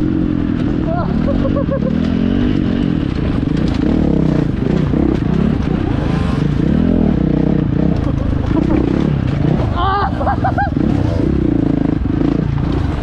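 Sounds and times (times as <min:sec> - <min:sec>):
dirt bike engine revving: 0:00.0 - 0:13.0
clicks and clatter: 0:01.9 - 0:06.6, 0:07.7 - 0:09.8.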